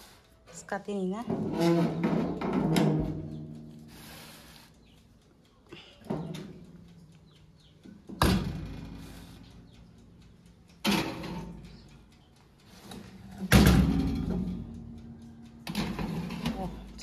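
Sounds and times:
metal cake tin clanking on rack: 1.3s - 3.2s, 13.4s - 14.7s, 15.7s - 16.8s
oven door being handled: 1.4s - 3.3s.

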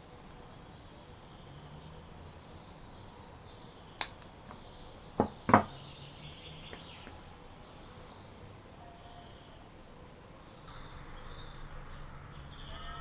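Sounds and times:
faint bird chirps: 0.2s - 13.0s
pliers knocking on table: 5.2s - 5.7s.

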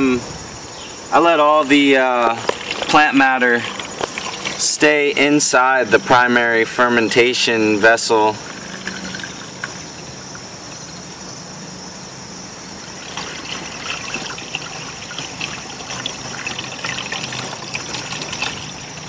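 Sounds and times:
steady hum: 0.0s - 19.0s
liquid trickling through funnel: 1.6s - 6.1s, 8.0s - 11.0s, 12.8s - 19.0s
splashing gurgles: 1.6s - 7.4s, 8.1s - 10.9s, 12.8s - 19.0s.

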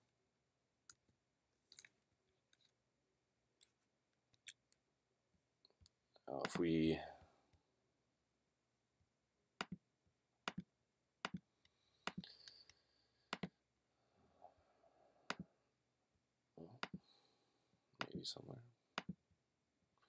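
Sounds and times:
computer mouse clicks: 10.5s - 11.4s, 12.0s - 13.5s, 15.3s - 15.5s, 16.8s - 17.0s, 19.0s - 19.2s.

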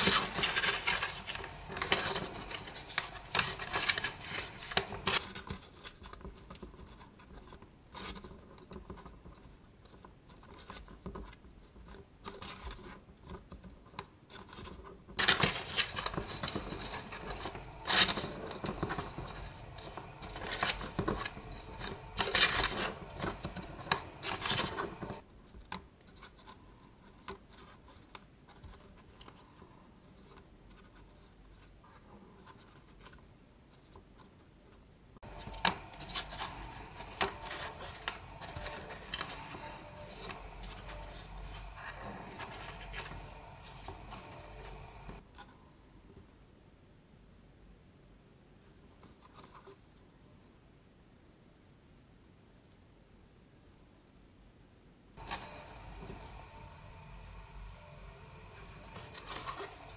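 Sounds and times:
cardboard strips scratching: 0.0s - 6.3s, 14.3s - 25.2s, 35.2s - 45.2s, 55.2s - 59.9s.

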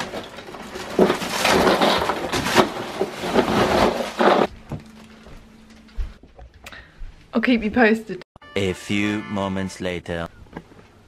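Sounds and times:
ice rattling into cooler: 0.0s - 4.5s.

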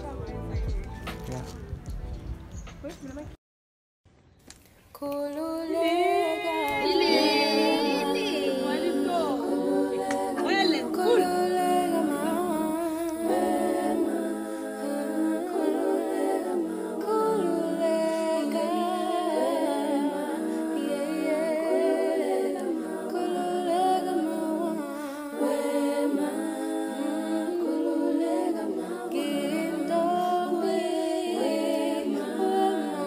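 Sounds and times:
voices singing a cappella: 0.0s - 1.7s, 5.0s - 33.0s.

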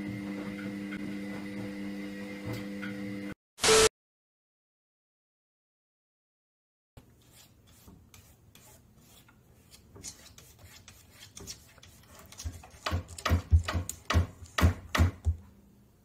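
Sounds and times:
cat claws scraping wood: 7.1s - 14.6s.

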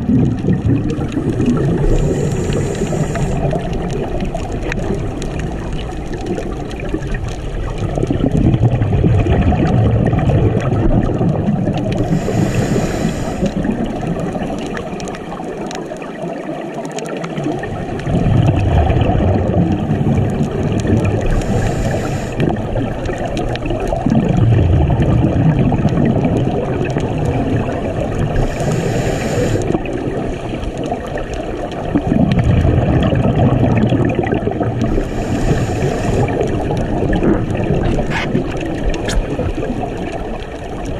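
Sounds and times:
gurgling exhaled bubbles: 0.0s - 40.9s
regulator inhale hiss: 1.8s - 3.7s, 11.9s - 13.6s, 21.2s - 22.6s, 28.4s - 29.8s, 34.8s - 36.6s.

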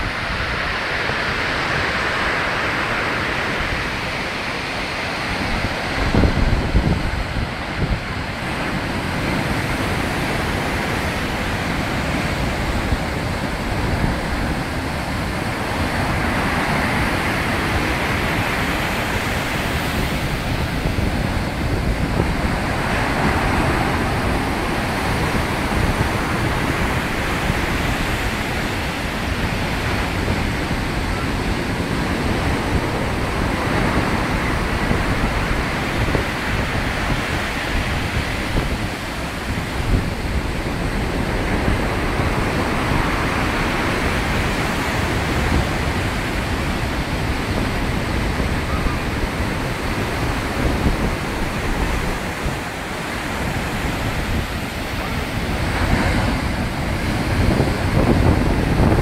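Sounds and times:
heavy surf breaking: 0.0s - 59.0s.

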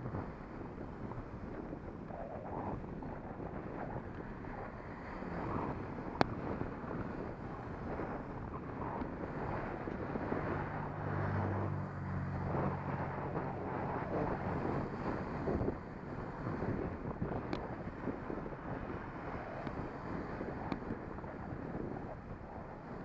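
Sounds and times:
wind rushing over microphone: 0.0s - 23.0s
car engine hum: 5.4s - 17.6s.

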